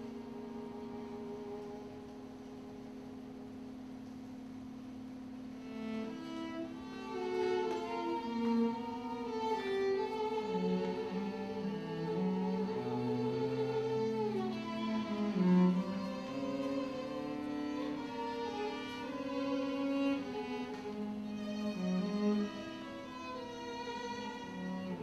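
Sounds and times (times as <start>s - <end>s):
low bowed strings: 0.0s - 4.2s, 5.5s - 25.0s
held string drone: 5.5s - 25.0s
violin with vibrato: 5.7s - 25.0s.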